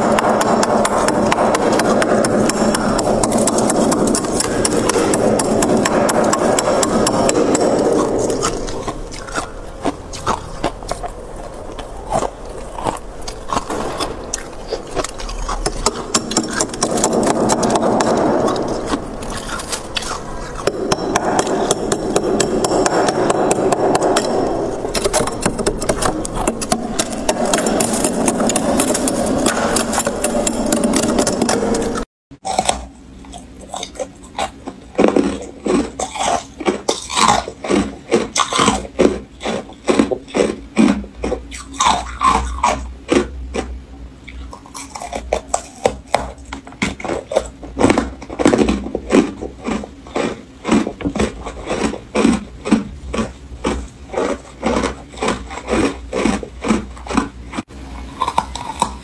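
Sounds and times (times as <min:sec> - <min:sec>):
crunching frost: 0:00.0 - 0:34.0, 0:46.9 - 0:59.0
tool scraping frost: 0:11.7 - 0:32.0.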